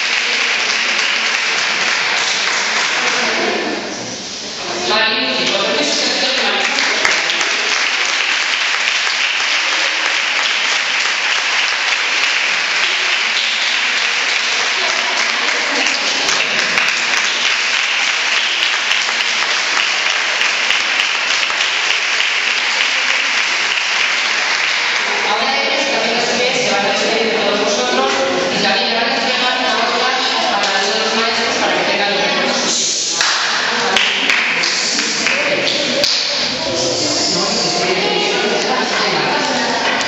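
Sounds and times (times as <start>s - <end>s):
crowd applause: 0.0s - 4.0s, 6.3s - 26.2s, 32.6s - 40.0s.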